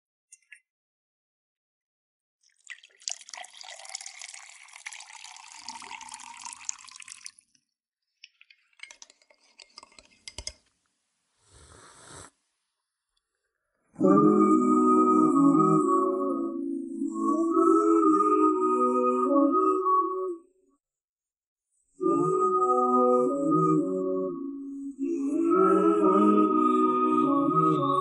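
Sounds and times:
garbled watery vocal artifacts: 0:13.8 - 0:20.4, 0:22.0 - 0:28.0.

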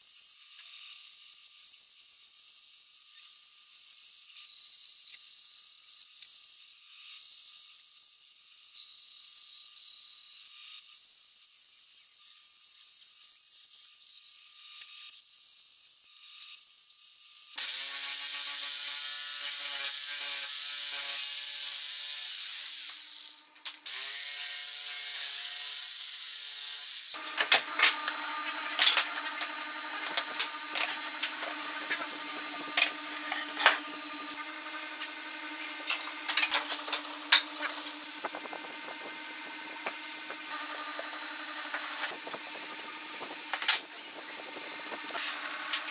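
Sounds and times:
bandsaw cutting wood: 0:17.6 - 0:45.9
power tool ticking and knocking: 0:27.2 - 0:44.0.

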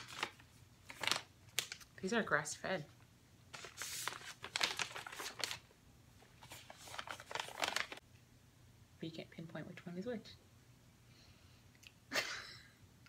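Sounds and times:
wrapper crinkling: 0:00.0 - 0:01.9, 0:03.5 - 0:08.0.

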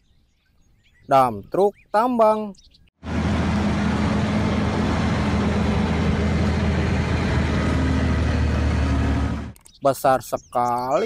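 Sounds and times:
heavy diesel engine running: 0:03.0 - 0:09.6.

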